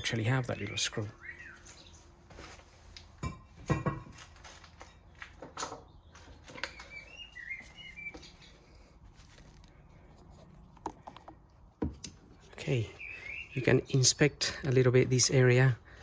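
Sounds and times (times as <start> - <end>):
small bird chirping: 0.0 - 2.1, 5.8 - 9.0, 12.7 - 14.0.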